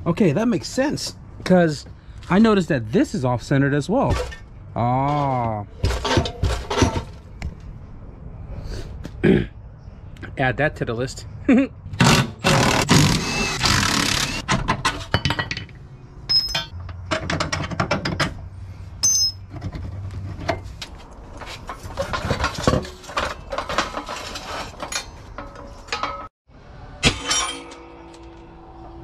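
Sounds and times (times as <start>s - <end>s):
steel parts clinking: 16.3s - 18.2s, 19.0s - 19.5s, 21.6s - 26.3s, 27.0s - 29.0s.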